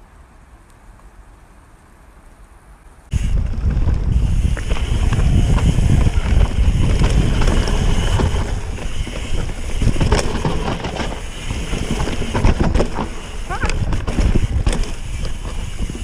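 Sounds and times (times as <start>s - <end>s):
tyres rumbling on dirt: 3.1s - 16.0s
wind rushing over microphone: 3.1s - 16.0s
bike clicks and knocks: 3.6s - 16.0s.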